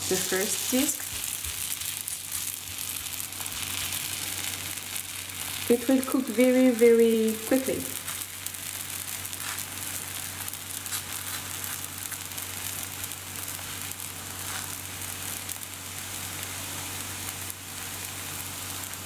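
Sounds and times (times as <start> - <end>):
dough sizzling in hot oil: 0.0 - 19.0.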